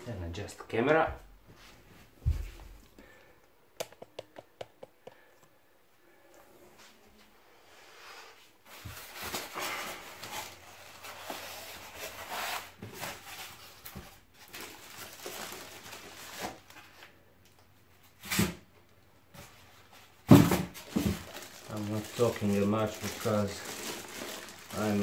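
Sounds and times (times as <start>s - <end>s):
plastic wrap rustling: 8.6s - 17.2s, 19.4s - 25.0s.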